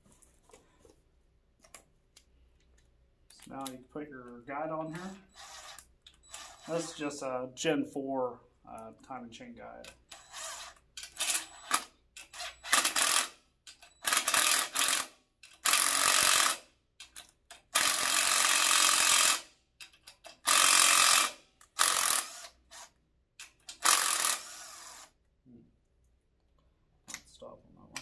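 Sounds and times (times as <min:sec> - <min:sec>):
cordless drill bursts: 0:04.9 - 0:07.1, 0:10.1 - 0:13.4, 0:14.0 - 0:16.6, 0:17.8 - 0:19.5, 0:20.4 - 0:22.9, 0:23.7 - 0:25.2.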